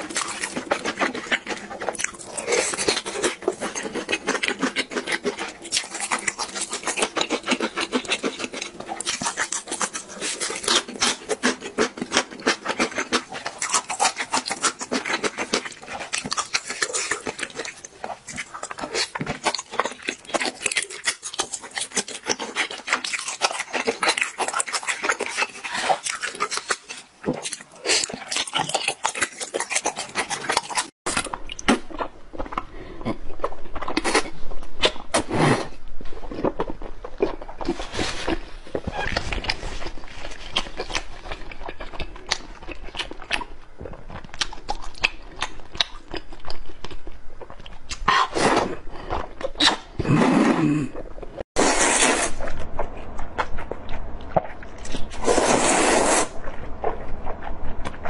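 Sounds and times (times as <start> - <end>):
wet chewing and mouth sounds: 0.0 - 58.0
low steady hum: 31.1 - 58.0.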